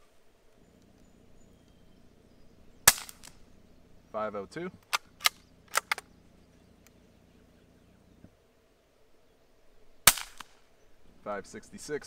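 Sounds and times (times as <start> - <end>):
rifle shot crack: 2.8 - 3.8, 4.8 - 6.1, 10.0 - 10.7
rifle bolt metallic clicks: 4.8 - 6.1.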